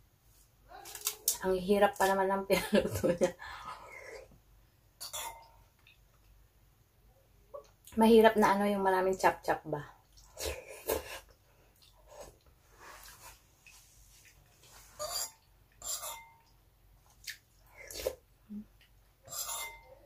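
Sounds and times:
person chewing: 10.1 - 15.8, 16.4 - 19.0
sharp mouth clicks and smacks: 17.2 - 18.1.

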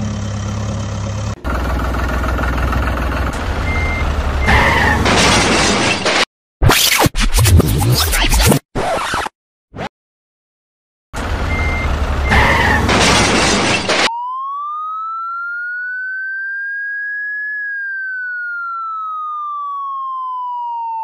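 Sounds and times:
siren sound effect: 3.6 - 5.8, 11.5 - 21.0.

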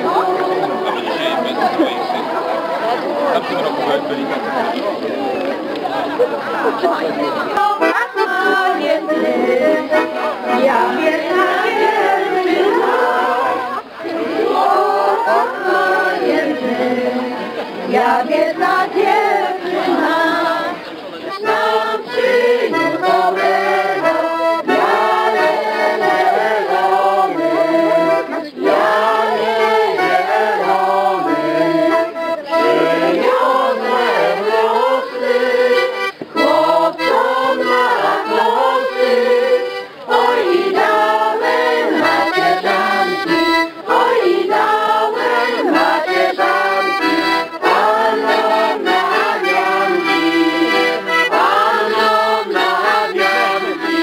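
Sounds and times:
accordion folk tune: 0.0 - 54.0
voices singing along: 0.0 - 54.0.

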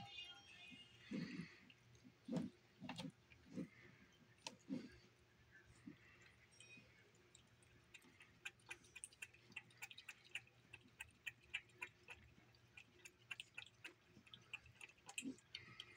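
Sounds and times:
cat eating clicks and smacks: 6.3 - 15.9.

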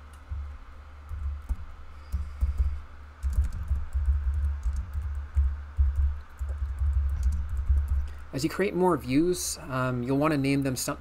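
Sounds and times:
typing on computer keyboard: 1.1 - 8.2.

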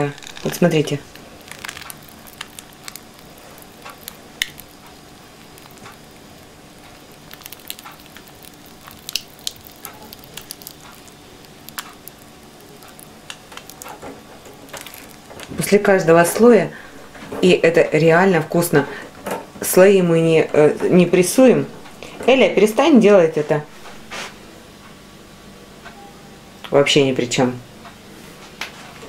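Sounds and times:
plastic pouch crinkling: 0.0 - 15.7.

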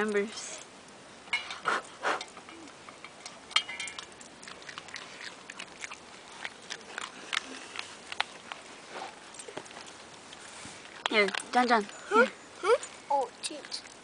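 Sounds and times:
dog crunching kibble: 3.2 - 12.0, 12.8 - 14.0.

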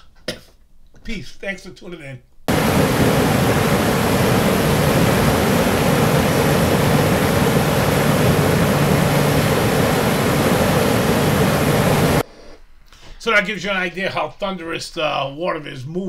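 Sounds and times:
rushing water pouring down: 2.5 - 12.2.

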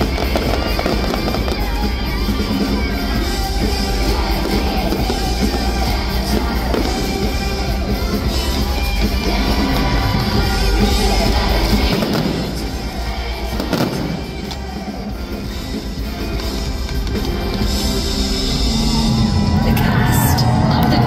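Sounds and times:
firework bursts: 0.0 - 8.9, 11.6 - 15.3
loud music playing: 0.0 - 21.0.

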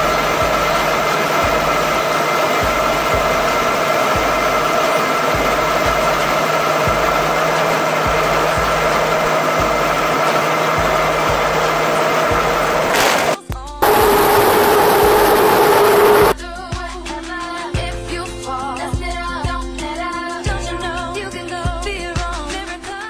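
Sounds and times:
turboprop engine drone and whine: 0.0 - 16.4.

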